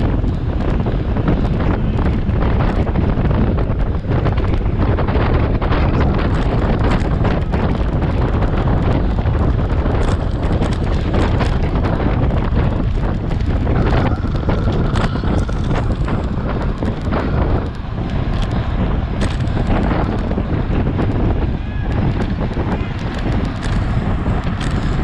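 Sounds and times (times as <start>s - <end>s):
wind rushing over microphone: 0.0s - 25.0s
small clicks and knocks: 19.2s - 20.3s, 22.2s - 25.0s.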